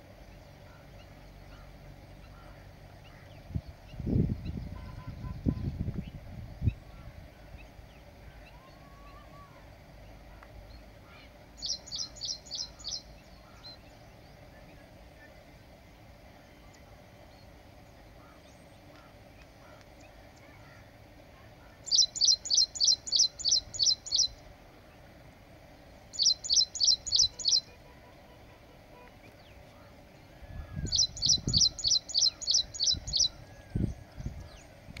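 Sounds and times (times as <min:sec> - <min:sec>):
small bird chirping: 0:10.0 - 0:15.4, 0:21.7 - 0:25.0, 0:25.9 - 0:27.7, 0:29.2 - 0:34.8.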